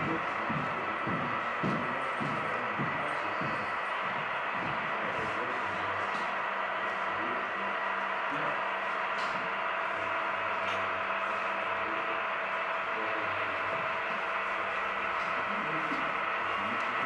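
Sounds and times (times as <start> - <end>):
faint distant murmuring voices: 0.0 - 8.7.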